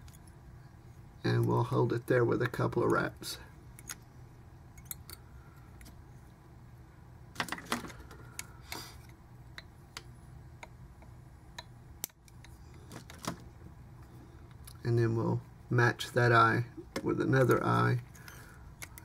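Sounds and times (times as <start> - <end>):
faint low hum: 0.0 - 19.0
small clicks of handling thread: 17.5 - 19.0.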